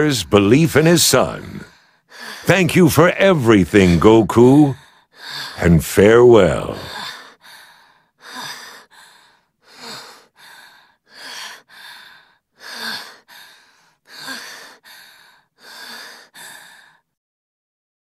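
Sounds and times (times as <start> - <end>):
boy gasping and sighing: 1.7 - 2.5, 4.8 - 5.6, 6.7 - 17.0.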